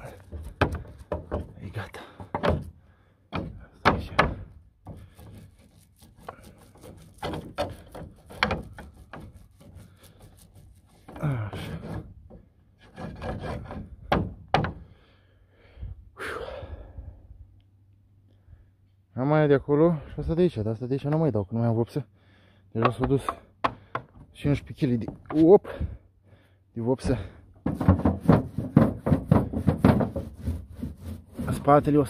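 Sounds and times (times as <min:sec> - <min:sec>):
brush scraping surface: 0:00.0 - 0:01.9, 0:04.9 - 0:12.1, 0:27.7 - 0:32.0
sharp knocks on surface: 0:27.6 - 0:30.3.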